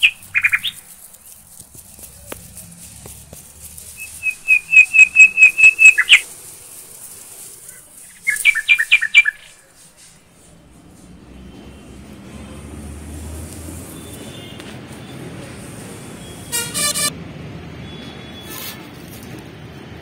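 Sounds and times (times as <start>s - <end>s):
bird calling high notes: 4.0s - 6.2s.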